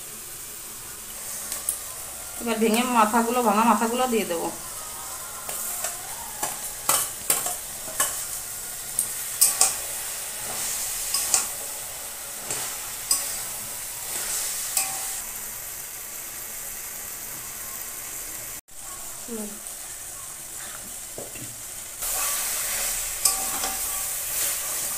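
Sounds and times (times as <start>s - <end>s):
food sizzling in a wok: 0.0s - 24.9s
metal scraping against pan: 5.4s - 15.2s, 22.0s - 24.9s.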